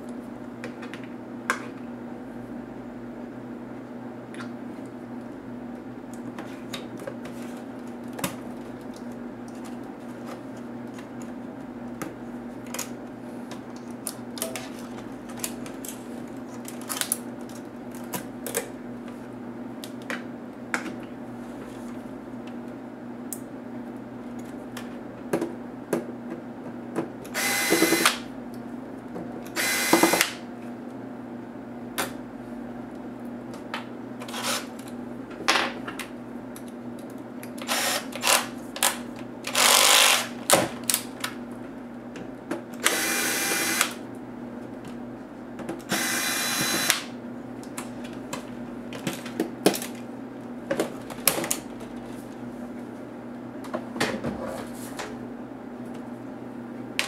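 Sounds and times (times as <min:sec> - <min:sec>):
electric screwdriver whirring: 0:27.4 - 0:28.2, 0:29.6 - 0:30.4, 0:37.6 - 0:38.5, 0:39.5 - 0:40.3, 0:42.8 - 0:44.0, 0:45.9 - 0:47.1.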